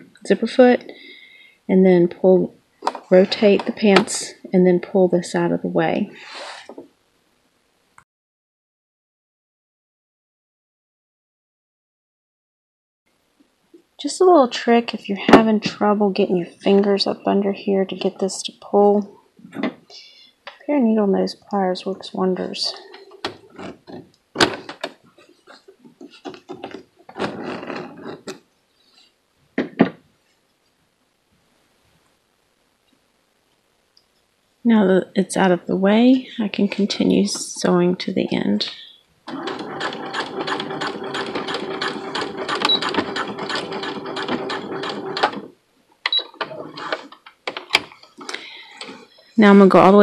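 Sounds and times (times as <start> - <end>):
sewing machine stitching: 39.3 - 45.5, 46.2 - 47.2.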